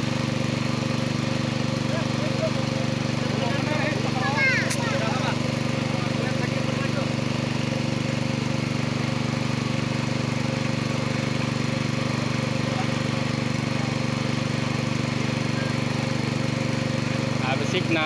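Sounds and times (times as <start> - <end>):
small engine chugging: 0.0 - 18.0.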